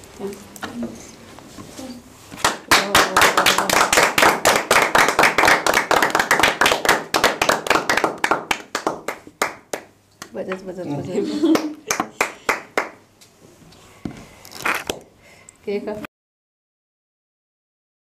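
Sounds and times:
group clapping: 2.4s - 10.4s, 11.4s - 13.0s.

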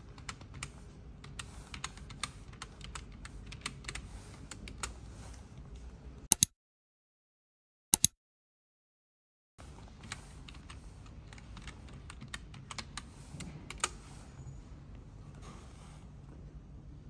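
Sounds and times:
low room hum: 0.0s - 6.3s, 9.6s - 17.0s
keyboard typing: 0.1s - 5.0s, 9.9s - 14.0s
sharp double clicks: 6.3s - 6.5s, 8.0s - 8.2s.

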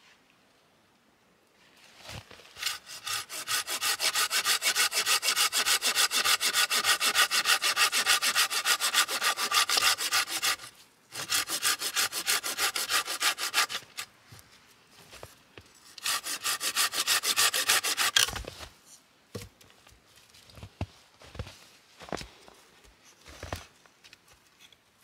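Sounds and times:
hand saw cutting log: 2.6s - 14.1s, 16.0s - 18.4s.

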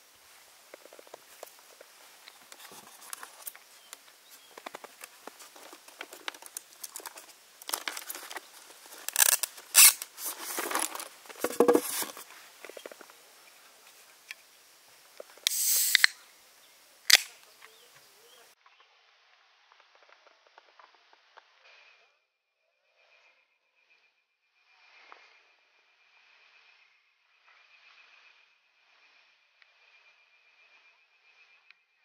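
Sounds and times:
objects rustling and clattering: 0.6s - 13.2s
drink can opening: 9.0s - 12.2s, 15.4s - 16.2s, 17.1s - 17.3s.

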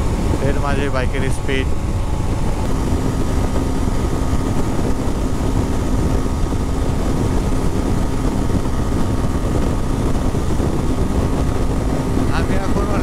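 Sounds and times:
motorcycle engine humming: 0.0s - 13.0s
wind rushing over microphone: 0.0s - 13.0s.

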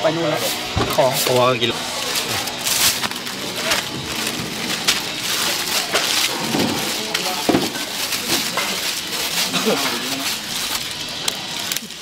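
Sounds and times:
plastic bag crinkling: 0.5s - 12.0s.

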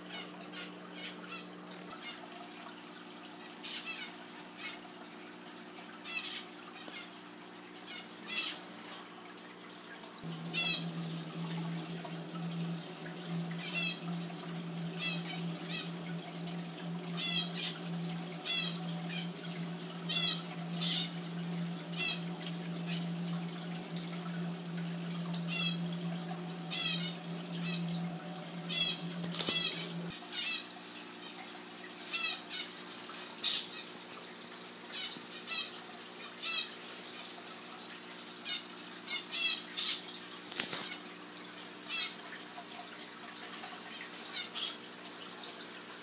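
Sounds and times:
aquarium water trickling: 0.0s - 46.0s
low steady hum: 7.8s - 30.4s.

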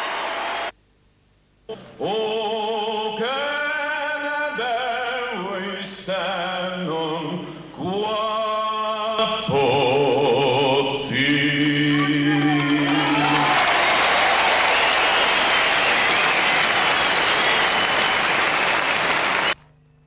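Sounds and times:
person singing with vibrato: 1.7s - 14.0s.

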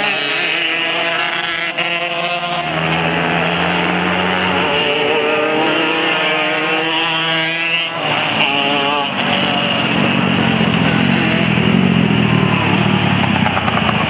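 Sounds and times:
two-stroke kart engine running hard: 0.0s - 14.0s.

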